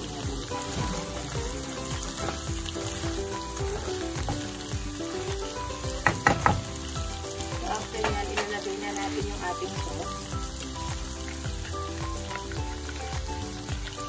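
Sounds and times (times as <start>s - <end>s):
food sizzling in a frying pan: 0.0s - 14.0s
utensil clacking against pan: 5.8s - 6.8s, 7.6s - 9.4s.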